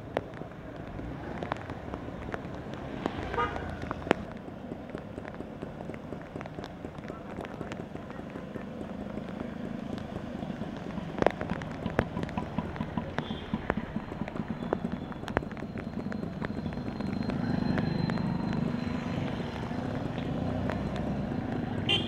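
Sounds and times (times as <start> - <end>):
rain and water washing: 0.0 - 21.6
water dripping and tapping: 0.1 - 17.8.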